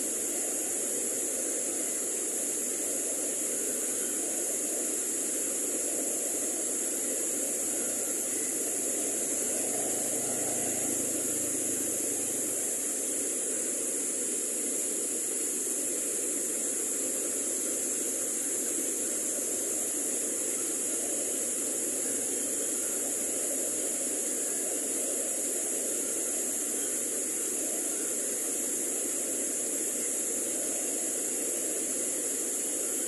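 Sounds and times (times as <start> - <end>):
high hiss: 0.0 - 33.0
water cascading over rocks: 0.0 - 33.0.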